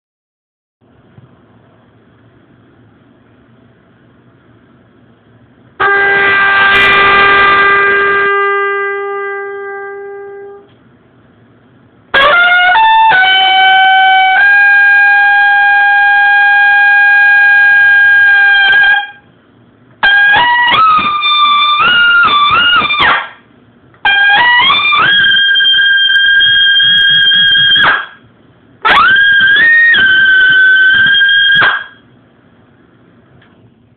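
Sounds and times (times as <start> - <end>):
trumpet playing: 5.8 - 10.7, 12.1 - 19.2, 20.0 - 23.3, 24.0 - 28.2, 28.8 - 32.0.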